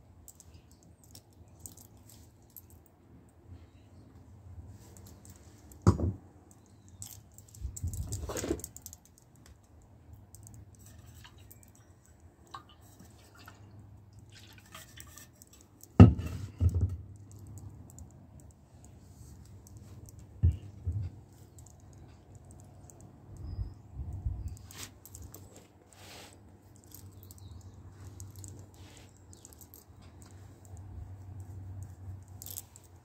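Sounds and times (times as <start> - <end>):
rubbing and scraping: 14.3 - 16.6.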